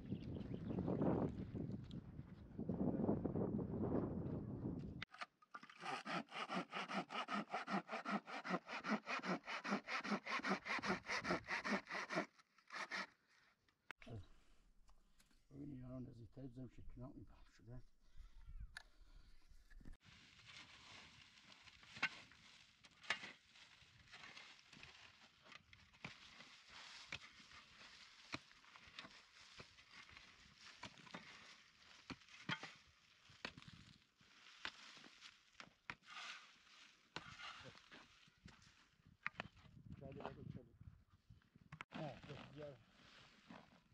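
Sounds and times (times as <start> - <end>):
hand saw cutting wood: 5.1 - 13.5, 35.9 - 38.2.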